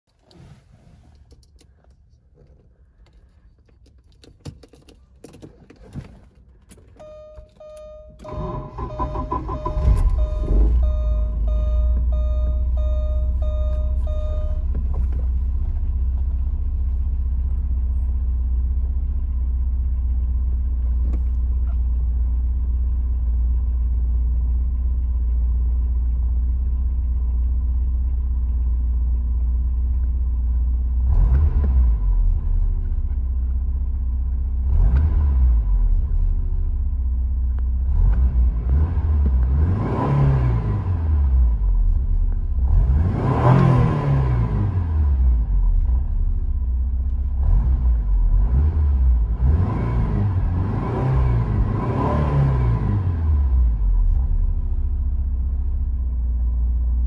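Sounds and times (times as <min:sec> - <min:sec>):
car engine idling: 0:06.4 - 0:31.2
warning chime beeping: 0:07.0 - 0:14.7
engine revving: 0:31.0 - 0:32.4, 0:34.6 - 0:36.0, 0:37.8 - 0:41.6, 0:42.6 - 0:45.4, 0:47.4 - 0:54.0.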